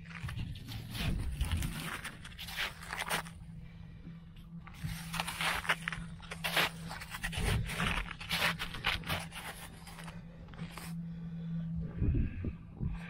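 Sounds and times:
footsteps crunching through snow: 0.0 - 3.4, 4.7 - 11.0
faint low hum: 0.0 - 13.0.

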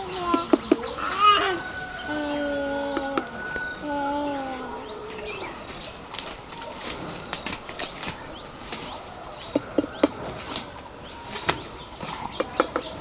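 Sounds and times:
small birds chirping: 0.0 - 13.0
footsteps through undergrowth: 3.6 - 13.0
twigs snapping: 6.1 - 13.0.

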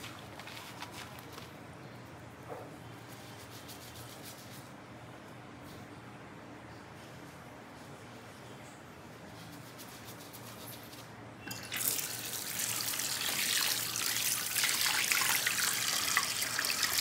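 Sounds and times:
tap water running into sink: 11.5 - 17.0
splashing face rinse: 11.7 - 17.0.

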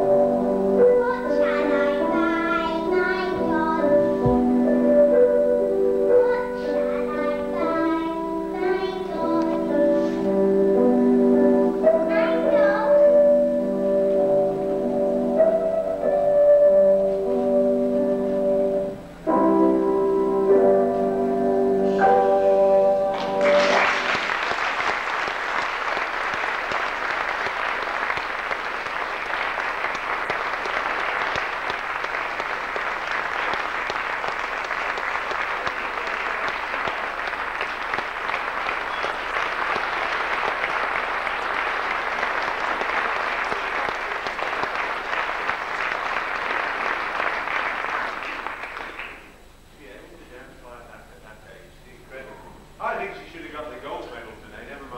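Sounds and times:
keyboard music chords: 0.0 - 24.1
audience applauding: 23.1 - 49.4.

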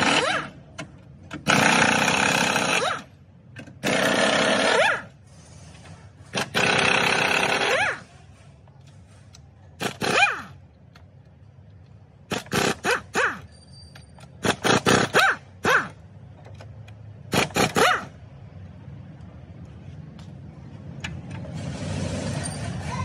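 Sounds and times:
impact wrench bursts: 0.0 - 0.6, 1.3 - 5.2, 6.2 - 8.0, 9.8 - 10.6, 12.2 - 16.0, 17.2 - 18.2.

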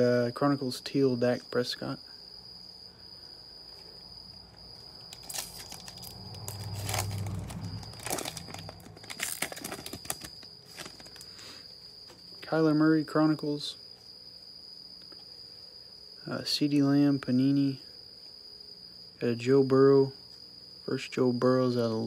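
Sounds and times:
cricket trilling: 0.0 - 22.0
foil wrapper crinkling and tearing: 5.1 - 11.4.

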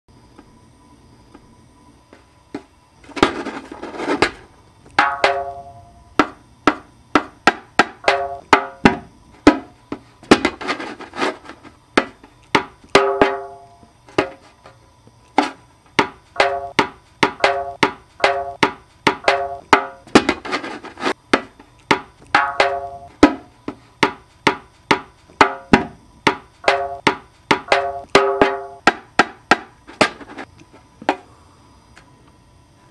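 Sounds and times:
drum strokes: 5.0 - 14.5, 15.4 - 30.5.

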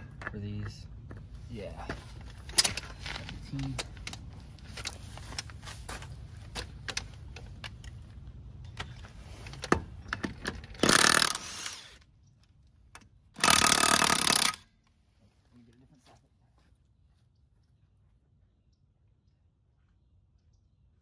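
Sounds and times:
impact wrench burst: 10.8 - 12.0, 13.4 - 14.7.

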